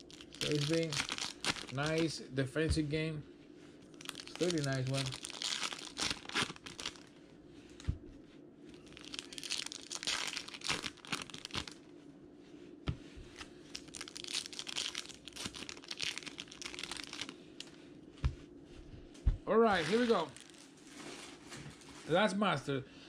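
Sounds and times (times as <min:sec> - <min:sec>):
foil wrappers crinkling and tearing: 0:00.0 - 0:02.2, 0:04.0 - 0:07.1, 0:08.8 - 0:11.8, 0:13.3 - 0:17.7, 0:19.7 - 0:22.1.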